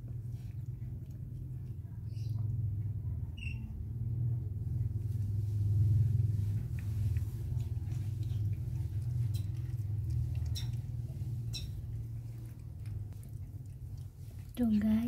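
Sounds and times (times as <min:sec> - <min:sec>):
low rumble: 0:00.0 - 0:15.0
cat licking wet clicks: 0:06.4 - 0:14.6.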